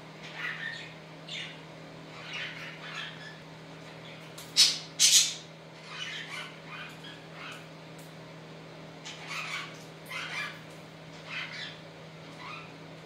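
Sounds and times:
budgerigars chattering: 0.2 - 3.4, 4.0 - 7.6, 11.2 - 11.8.

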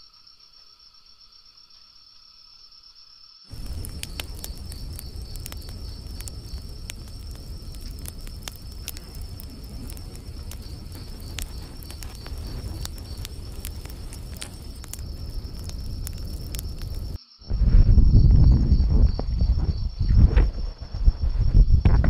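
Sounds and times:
crickets chirping: 0.0 - 22.0
campfire crackling and popping: 3.5 - 17.2
low rumble: 3.5 - 22.0.

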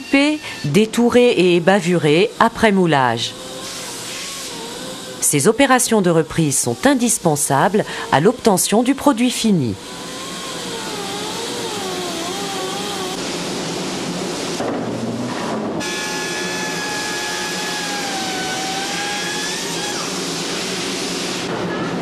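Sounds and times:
cutting spindle whining: 9.8 - 13.2, 15.8 - 20.4
disc grinder whining: 9.8 - 13.2, 15.8 - 20.8.

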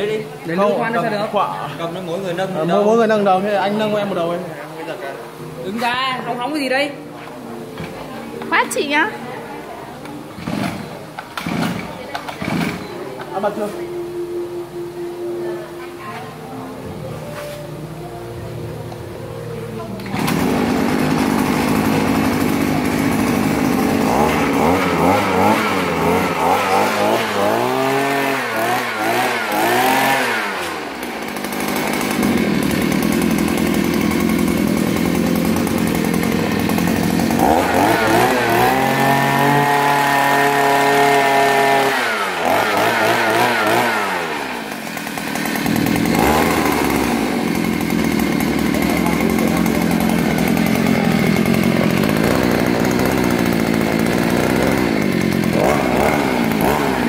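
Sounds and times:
two-stroke engine revving: 10.1 - 15.0, 17.8 - 57.0.

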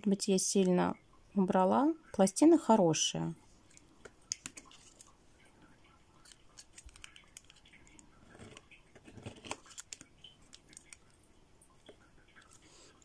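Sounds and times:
plastic card scraping metal plate: 8.2 - 10.0.

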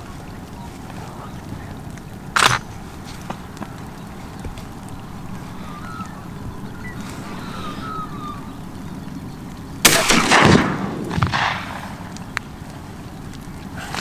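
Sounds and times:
shotgun shot: 9.8 - 12.1.

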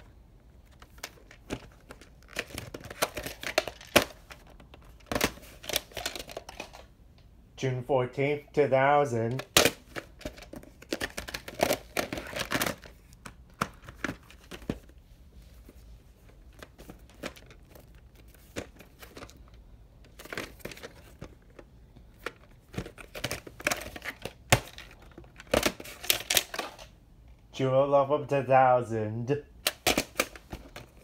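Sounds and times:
plastic cases clicking and snapping: 0.6 - 6.9, 9.3 - 15.0, 16.2 - 27.0, 29.6 - 31.0.

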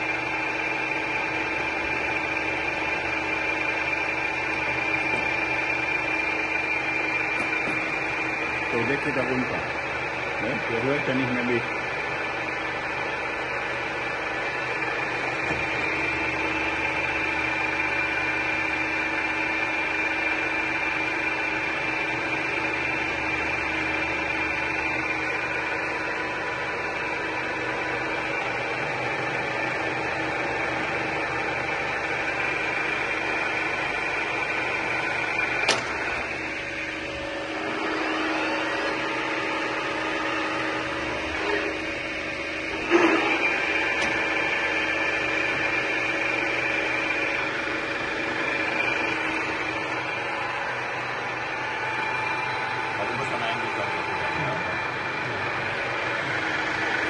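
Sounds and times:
lathe running with high whine: 0.0 - 57.0.

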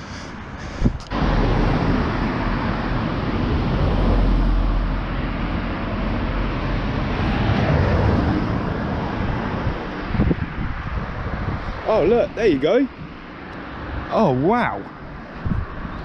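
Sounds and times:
road traffic passing: 0.0 - 16.0.

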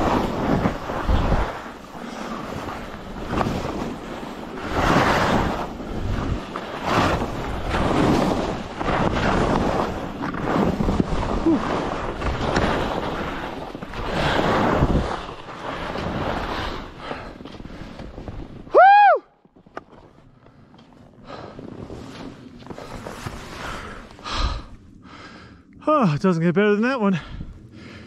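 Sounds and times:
skis swishing through snow: 0.0 - 18.7, 20.9 - 24.3.

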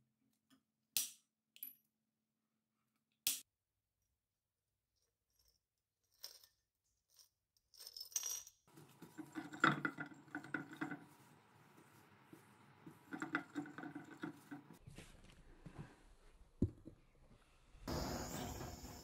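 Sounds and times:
metal pieces clinking in glass jar: 6.1 - 11.0
knocks and rustling of wire: 8.7 - 15.3.

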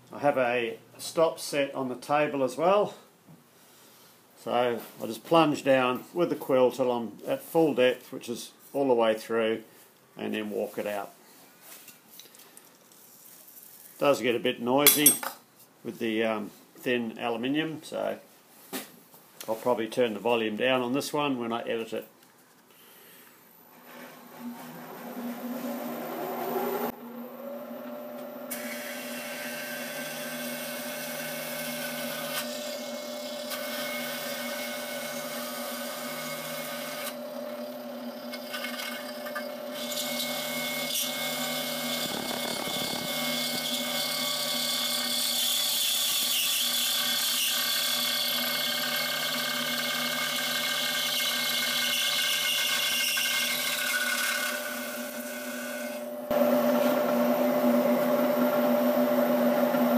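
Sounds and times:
high-pitched metal cutting: 28.5 - 58.0
milling machine spindle hum: 53.1 - 59.9.

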